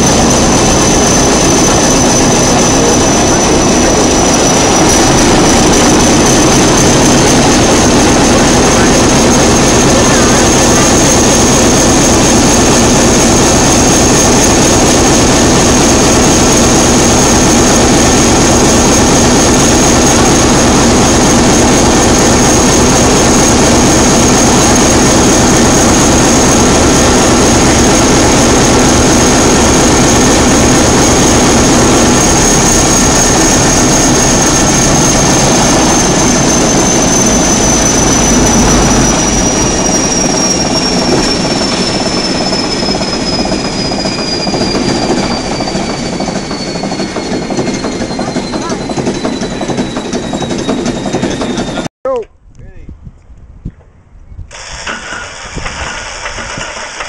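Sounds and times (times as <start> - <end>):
diesel engine running: 0.0 - 51.9
high whistle: 32.1 - 51.9.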